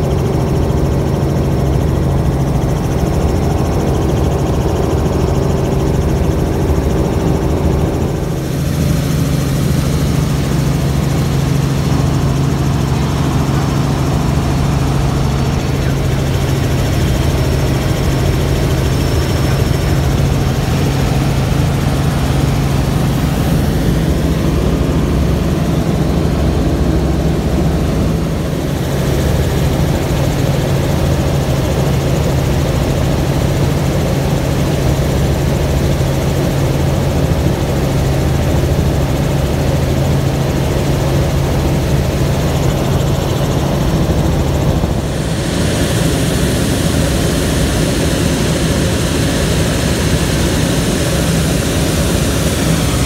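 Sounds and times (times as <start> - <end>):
helicopter engine and rotors: 0.0 - 53.0.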